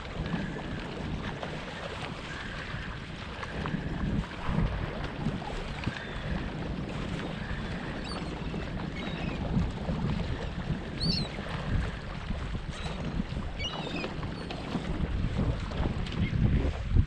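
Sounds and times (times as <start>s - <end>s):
water moving around kayak: 0.0s - 17.0s
wind rushing over microphone: 0.0s - 17.0s
seagulls calling: 5.7s - 6.5s, 7.3s - 9.5s, 10.8s - 11.4s, 13.6s - 14.6s.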